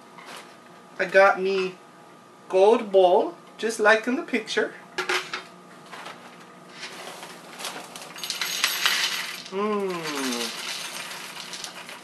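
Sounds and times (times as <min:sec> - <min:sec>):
cereal pouring into bowl: 0:06.9 - 0:12.0
man humming: 0:09.5 - 0:10.6.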